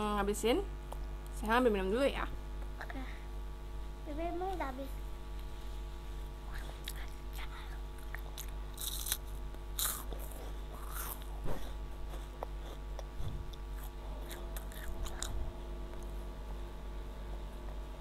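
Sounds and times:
child chewing crunchy snack: 6.5s - 16.1s.

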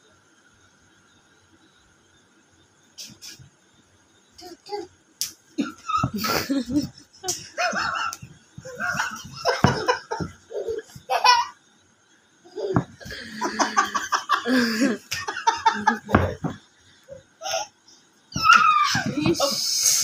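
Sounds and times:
people laughing heartily: 5.7s - 10.8s, 13.0s - 16.5s
people speaking: 14.5s - 16.5s, 18.5s - 20.0s.

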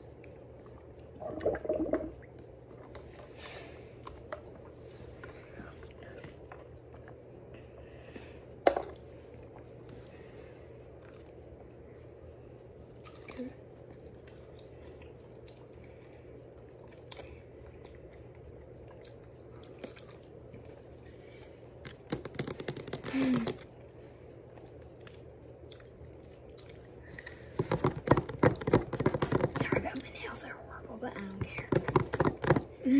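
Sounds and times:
people chewing fruit: 0.0s - 1.2s, 2.3s - 29.4s
low steady hum: 0.0s - 32.9s.

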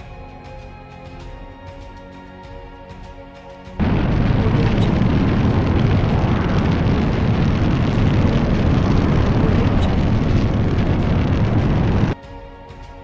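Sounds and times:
fire-like rumble with crackling: 3.8s - 12.2s.

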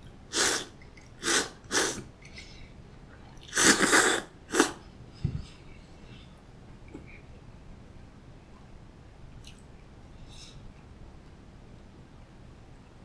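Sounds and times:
person slurping noodles: 0.3s - 2.0s, 3.4s - 4.8s.

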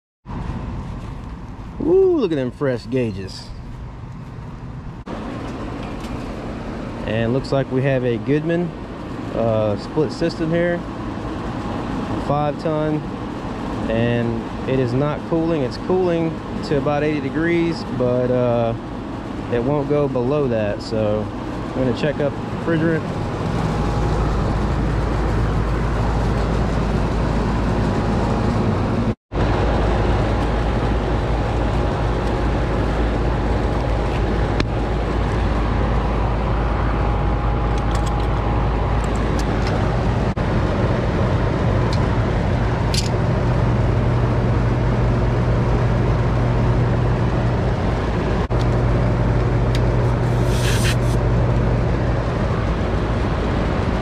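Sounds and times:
air conditioner unit droning: 0.3s - 54.0s
short hiss: 50.3s - 51.2s.

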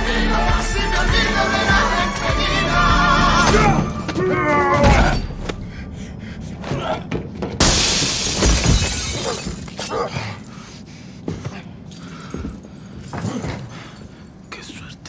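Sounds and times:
glass shattering: 7.6s - 10.5s.

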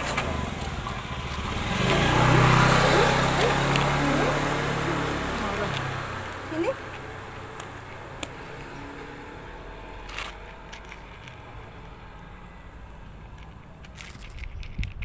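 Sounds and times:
cat crunching dry kibble: 10.0s - 12.0s, 13.1s - 15.0s.

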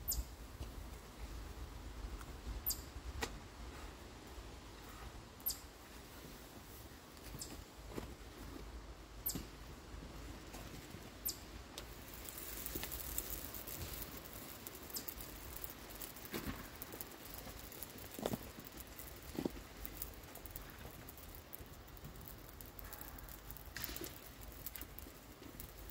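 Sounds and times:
food sizzling in frying pan: 11.4s - 25.9s.

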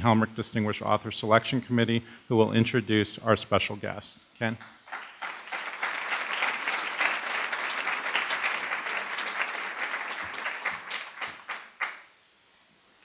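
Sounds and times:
audience applauding: 4.8s - 12.1s.

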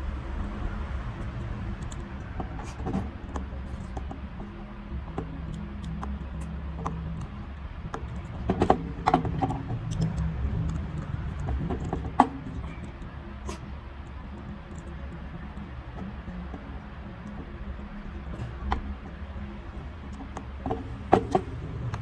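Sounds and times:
steady low hum: 0.0s - 22.0s
small metal clicks: 1.2s - 16.6s.

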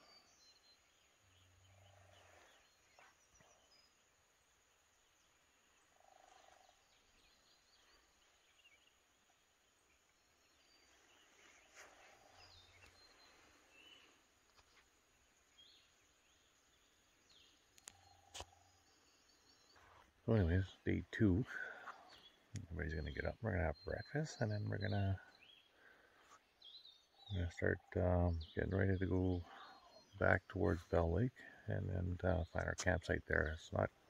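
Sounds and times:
faint low animal calls: 0.0s - 4.1s, 5.3s - 9.4s, 10.8s - 14.2s, 27.0s - 34.0s
faint bird chirps: 0.0s - 34.0s.

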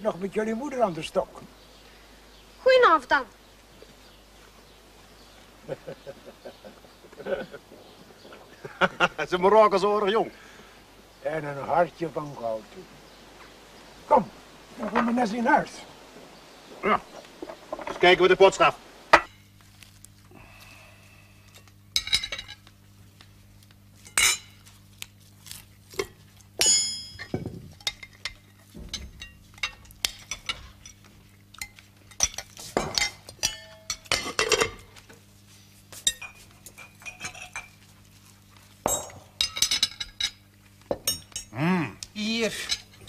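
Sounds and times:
cutlery and dishes clinking: 26.0s - 34.9s, 36.0s - 37.8s, 38.9s - 40.4s.

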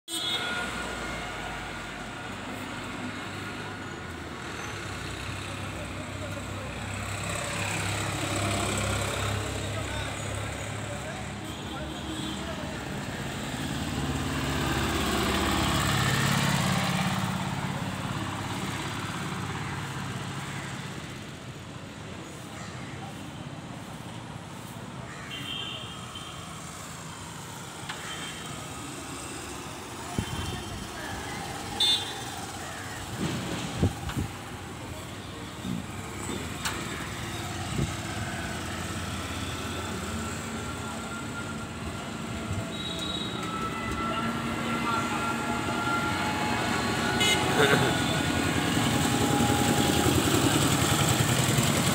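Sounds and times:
background traffic noise: 0.1s - 51.9s
low traffic rumble: 28.5s - 51.9s
motorcycle engines passing: 28.6s - 51.9s.

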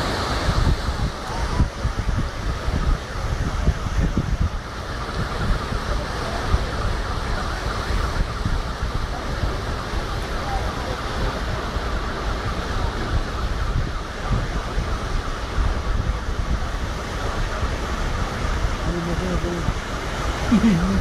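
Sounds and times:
floodwater rushing: 0.0s - 21.0s
wind buffeting microphone: 0.0s - 21.0s.

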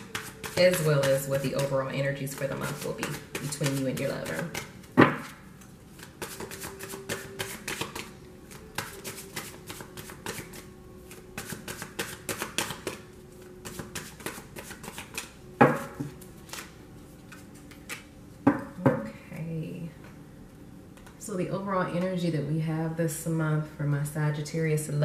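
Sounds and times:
cards being shuffled: 2.4s - 13.0s, 13.6s - 15.4s, 16.4s - 16.7s.

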